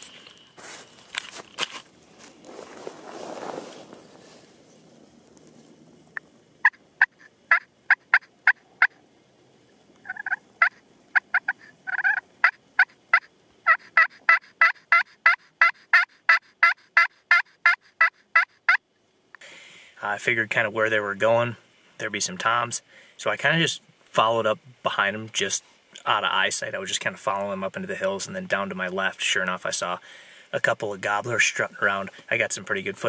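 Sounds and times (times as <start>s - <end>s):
turkey call yelps: 6.6s - 9.0s, 10.0s - 18.8s.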